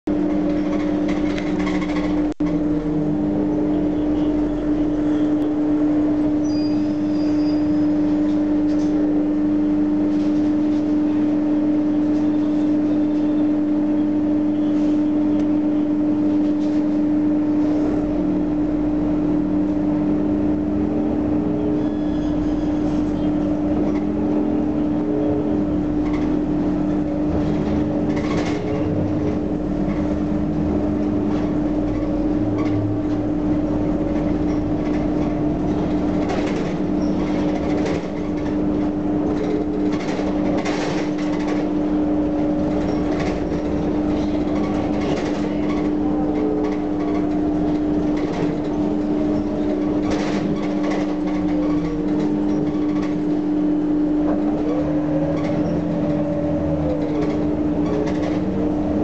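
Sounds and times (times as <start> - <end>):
bus engine drone: 0.1 - 59.0
body and fittings rattling: 25.9 - 59.0.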